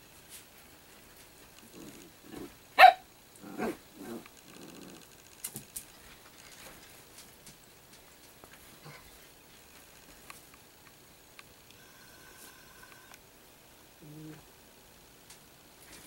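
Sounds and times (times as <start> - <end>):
dogs growling: 1.6 - 2.6, 3.4 - 5.1, 14.0 - 14.5
dog barking: 2.8 - 3.0.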